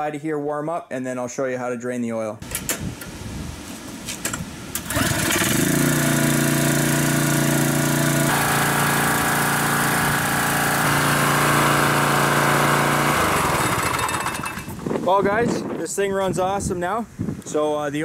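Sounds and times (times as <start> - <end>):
small engine starting and running: 4.7 - 14.8.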